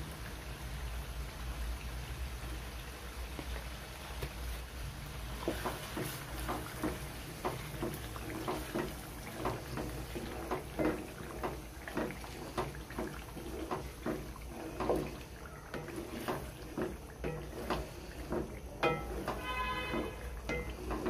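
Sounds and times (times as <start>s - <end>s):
gravy bubbling: 3.4s - 21.0s
spatula stirring thick gravy: 5.2s - 21.0s.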